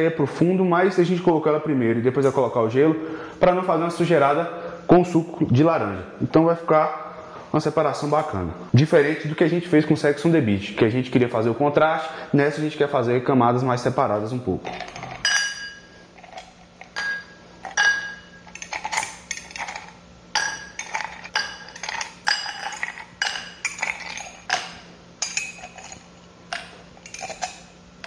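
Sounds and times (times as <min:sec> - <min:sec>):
ice cubes clinking in glass: 0:14.7 - 0:27.7.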